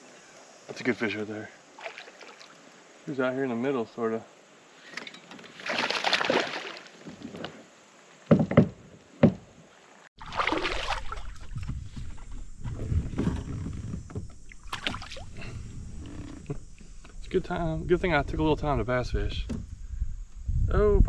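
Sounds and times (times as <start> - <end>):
water splashing: 1.7 - 2.8, 5.4 - 7.3, 9.8 - 11.8, 14.4 - 15.4
knocks on plastic kayak: 8.3 - 9.4.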